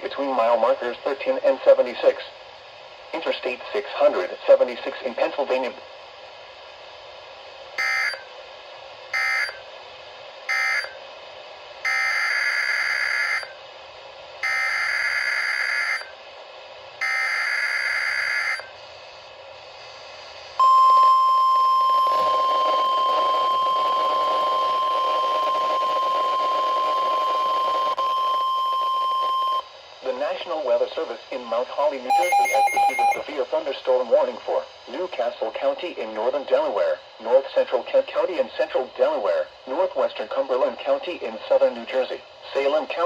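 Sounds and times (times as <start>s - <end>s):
steady warning alarm tone: 7.8s - 8.3s, 9.1s - 9.6s, 10.5s - 11.0s, 11.8s - 13.6s, 14.4s - 16.2s, 17.0s - 18.7s, 20.6s - 29.7s, 32.1s - 33.3s.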